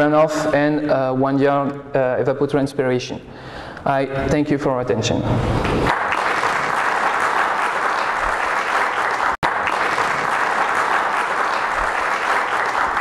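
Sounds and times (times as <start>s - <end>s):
audience applauding: 5.6s - 13.0s.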